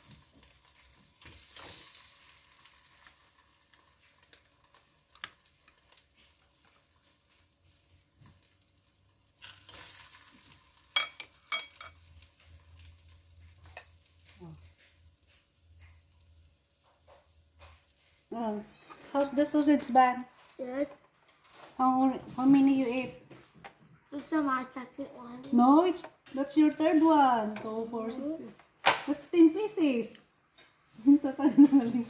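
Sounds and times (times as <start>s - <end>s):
oil sizzling in a pan: 0.0s - 19.9s
utensil clinking against pan: 11.0s - 12.0s.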